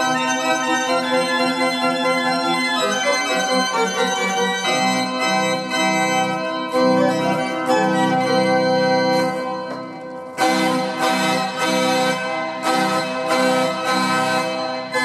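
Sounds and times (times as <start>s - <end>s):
slow organ chords: 0.0s - 15.0s.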